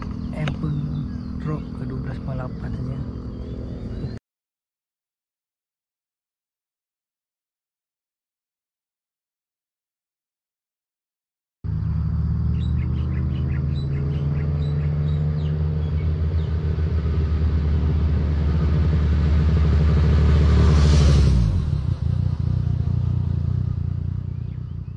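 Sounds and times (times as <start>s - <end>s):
motorcycle engine passing by: 0.0s - 4.2s, 11.7s - 24.9s.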